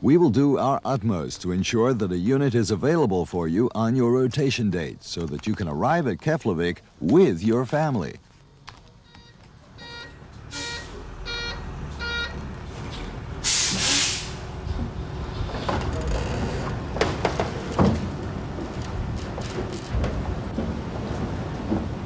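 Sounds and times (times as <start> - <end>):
reversing beeper: 9.1 - 12.4
truck engine idling: 9.6 - 15.8
loud air hiss: 13.4 - 14.6.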